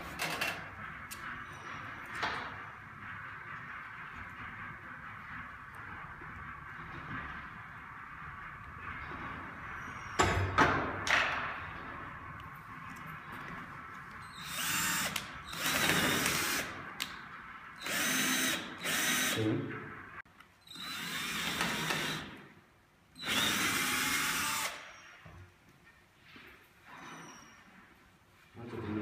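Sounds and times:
cordless drill boring shingles: 0:14.2 - 0:16.7, 0:17.8 - 0:19.4, 0:20.7 - 0:22.2, 0:23.2 - 0:24.9.

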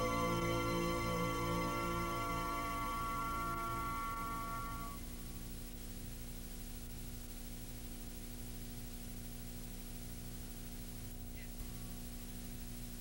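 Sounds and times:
background music: 0:00.0 - 0:05.0
low electrical hum: 0:00.0 - 0:13.0.

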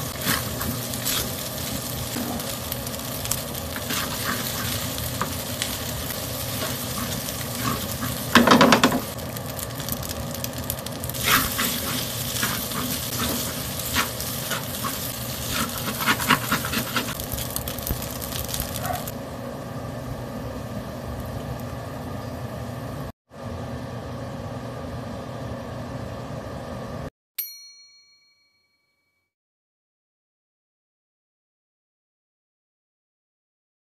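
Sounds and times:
rice sizzling in a wok: 0:00.0 - 0:23.1
spatula scraping a metal pan: 0:11.2 - 0:17.2.

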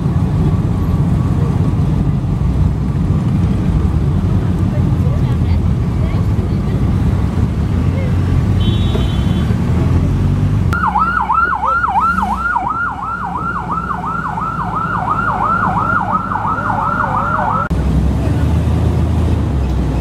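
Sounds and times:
car engine rumble: 0:00.0 - 0:20.0
road noise: 0:00.0 - 0:20.0
siren yelping: 0:10.8 - 0:17.7.

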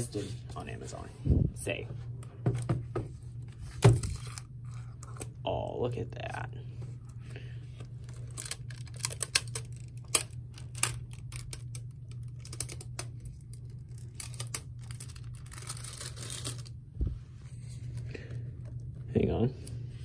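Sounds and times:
steady low hum: 0:00.0 - 0:20.0
plastic film peeling crackles: 0:07.9 - 0:16.8.

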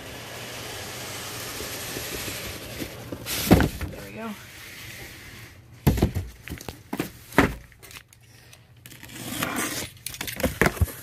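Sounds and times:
cardboard scraping and rustling: 0:02.0 - 0:07.6
box cutter cutting packing tape: 0:08.9 - 0:11.0.

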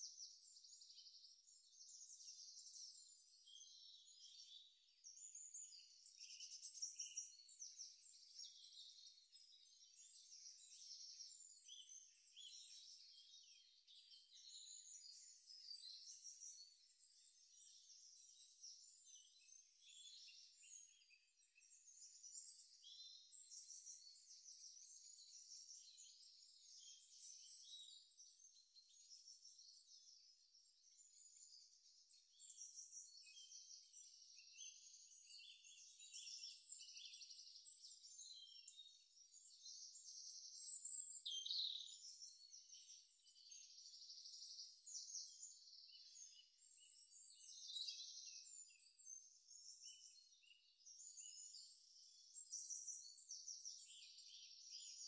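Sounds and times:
faint high-pitched chirping: 0:00.0 - 0:55.0.

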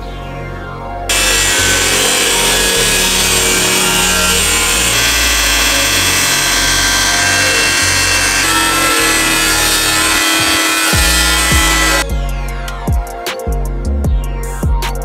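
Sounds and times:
angle grinder cutting sheet metal: 0:01.1 - 0:12.1.

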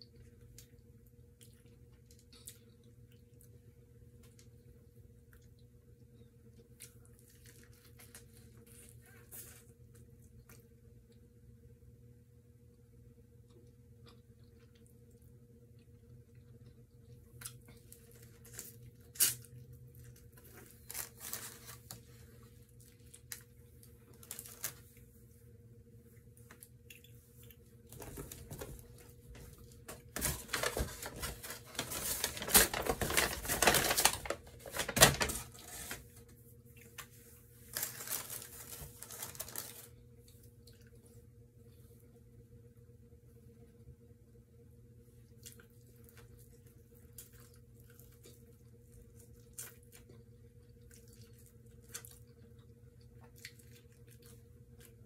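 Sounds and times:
crisp crackling: 0:17.4 - 0:25.1, 0:27.9 - 0:36.2, 0:36.9 - 0:40.0
chewing corn on the cob: 0:45.2 - 0:55.0.

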